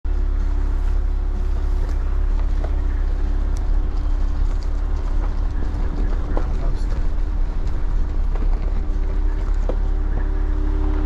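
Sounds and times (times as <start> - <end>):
tyre and engine rumble: 0.0 - 11.0.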